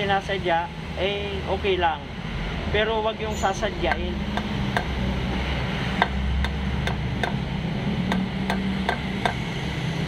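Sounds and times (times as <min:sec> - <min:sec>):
hammer tapping on socket: 0:03.9 - 0:04.9, 0:06.0 - 0:07.4, 0:08.1 - 0:09.4.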